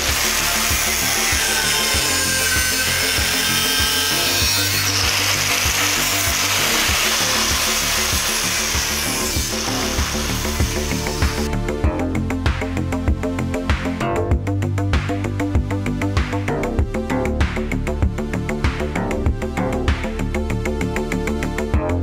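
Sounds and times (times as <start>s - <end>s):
angle grinder cutting metal: 0.0s - 11.5s
background music with steady beat: 0.0s - 22.0s.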